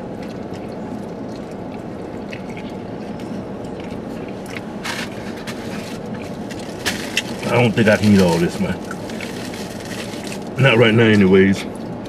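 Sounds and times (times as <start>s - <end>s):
wet chewing: 0.0s - 10.6s
low hum inside car: 0.0s - 12.0s
wrapper rustling: 4.8s - 10.6s.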